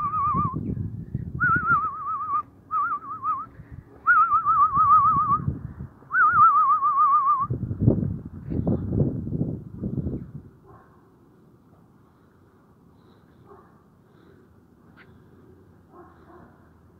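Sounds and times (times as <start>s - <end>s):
warbling whistle: 1.4s - 3.5s, 4.1s - 5.5s.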